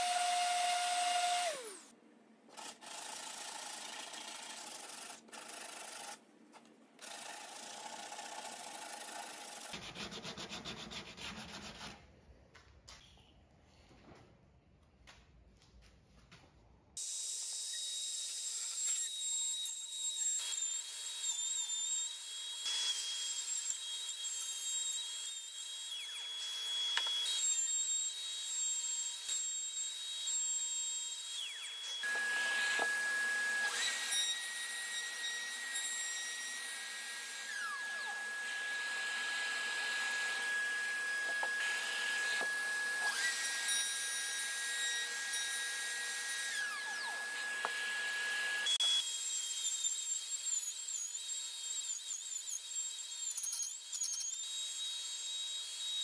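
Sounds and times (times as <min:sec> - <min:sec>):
router whining while cutting wood: 0:00.0 - 0:01.9, 0:17.5 - 0:56.0.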